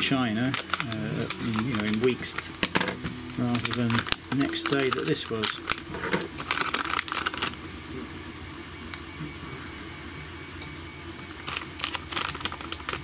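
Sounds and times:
plastic bag crinkling and clicking: 0.0 - 7.6, 11.4 - 13.0.

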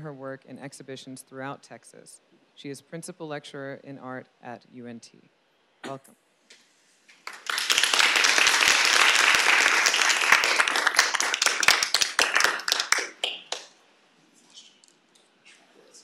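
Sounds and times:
audience applauding: 7.2 - 13.7.

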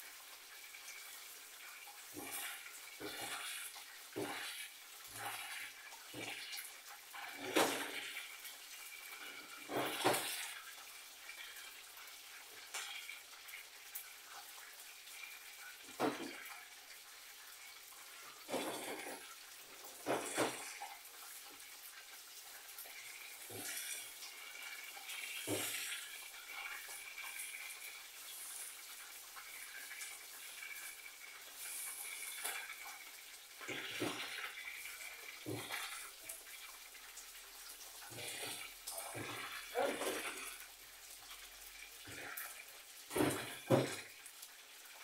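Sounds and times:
pots and utensils clattering: 2.0 - 6.6, 7.2 - 8.3, 9.1 - 10.6, 15.7 - 16.6, 18.2 - 21.0, 25.0 - 26.9, 33.6 - 36.4, 38.2 - 40.6, 43.1 - 44.2.

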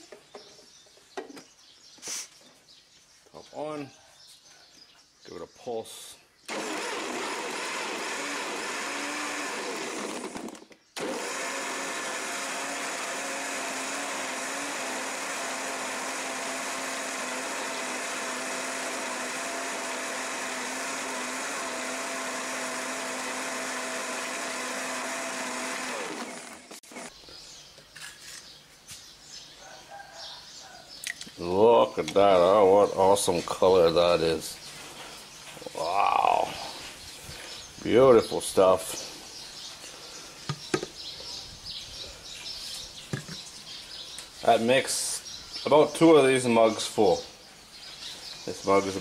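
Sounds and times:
blender motor running: 6.5 - 27.1.

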